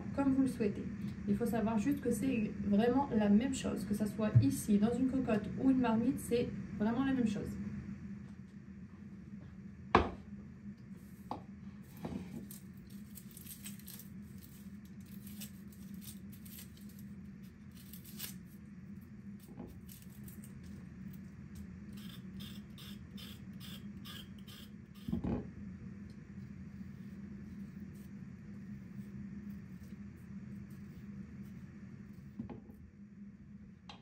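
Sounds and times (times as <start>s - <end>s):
low steady hum: 0.0s - 34.0s
bowl knocking on cutting board: 10.0s - 10.2s
knife scraping onion: 21.9s - 25.2s, 26.3s - 32.4s
peeler scraping carrot: 21.9s - 25.2s.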